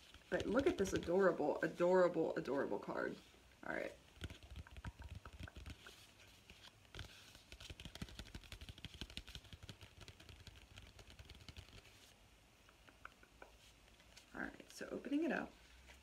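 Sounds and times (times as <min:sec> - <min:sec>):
paper envelope rustling: 0:04.2 - 0:12.1.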